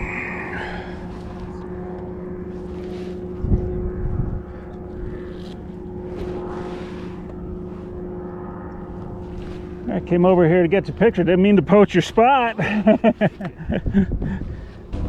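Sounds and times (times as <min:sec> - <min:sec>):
steady motor drone: 0:00.0 - 0:15.0
low thumps: 0:14.8 - 0:15.0.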